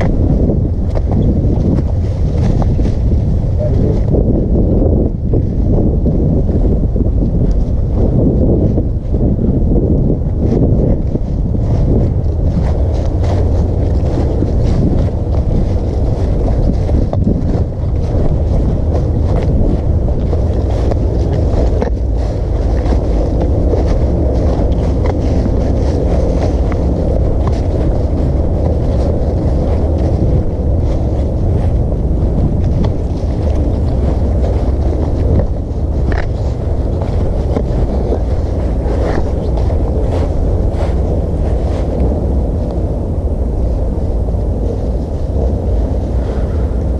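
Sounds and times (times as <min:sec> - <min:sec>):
wind buffeting microphone: 0:00.0 - 0:46.9
footsteps in dry leaves: 0:10.3 - 0:46.9.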